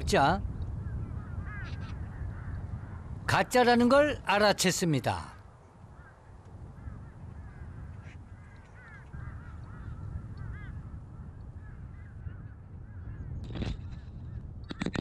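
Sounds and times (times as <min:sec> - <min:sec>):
wind rumble: 0:00.0 - 0:15.0
birds honking calls: 0:05.9 - 0:13.4.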